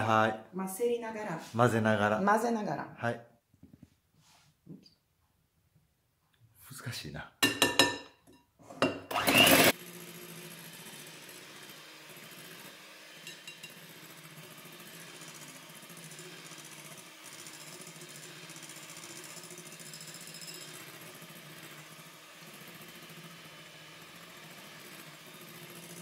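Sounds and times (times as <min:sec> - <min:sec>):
electric hand mixer running: 0:09.1 - 0:26.0.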